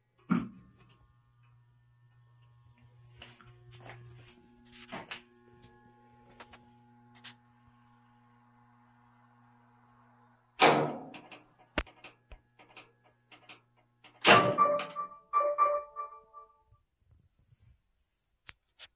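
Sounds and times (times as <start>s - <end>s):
sharp clicks: 11.1s - 14.4s
washing machine clunk: 14.2s - 15.8s.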